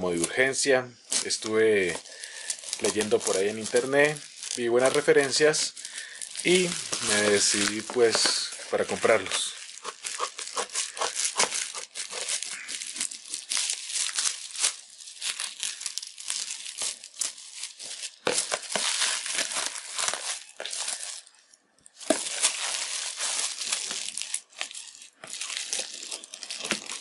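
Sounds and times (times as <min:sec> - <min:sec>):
plastic bag crinkling and tearing: 0:00.0 - 0:27.0
scissors cutting plastic: 0:06.4 - 0:13.8.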